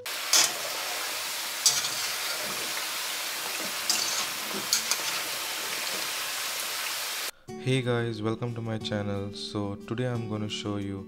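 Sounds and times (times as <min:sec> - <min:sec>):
oil sizzling: 0:00.0 - 0:07.3
sharp oil crackles: 0:00.0 - 0:07.3.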